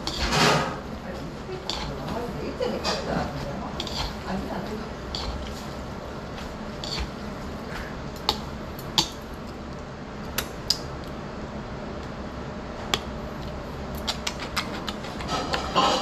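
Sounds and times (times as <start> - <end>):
utensils clicking against dishes: 0.0 - 0.9, 1.5 - 5.6, 6.8 - 7.2.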